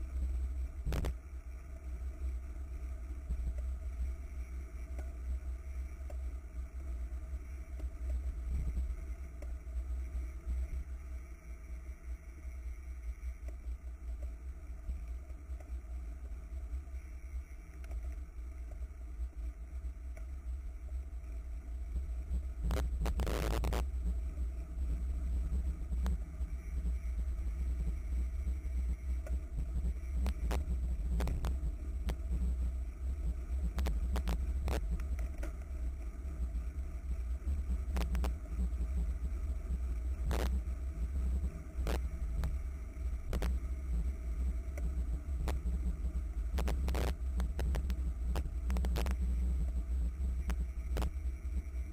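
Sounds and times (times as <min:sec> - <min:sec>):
wind rumbling on microphone: 0:21.6 - 0:51.9.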